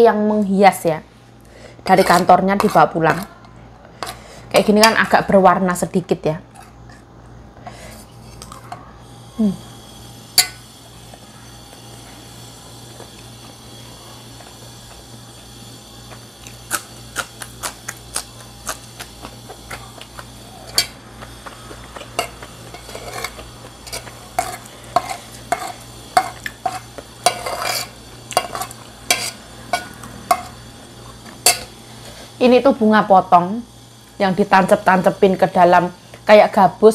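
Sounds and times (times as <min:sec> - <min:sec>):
steady low hum: 0:00.0 - 0:36.9.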